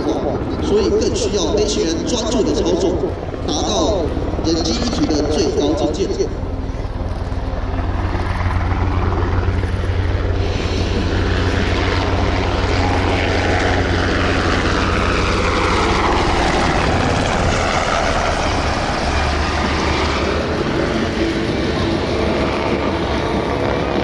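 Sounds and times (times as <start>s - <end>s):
helicopter rotor beat: 0.0s - 24.0s
turbine whine: 0.0s - 24.0s.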